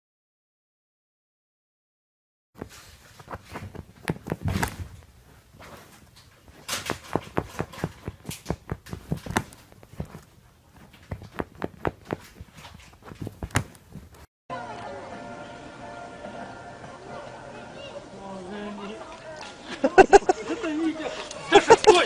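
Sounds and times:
fingers scratching a couch cushion: 2.6 - 14.3.

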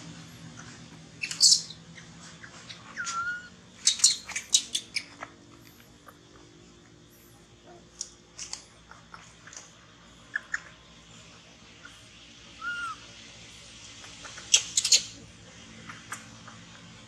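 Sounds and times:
baby monkey squealing: 1.2 - 1.8, 2.4 - 5.2.

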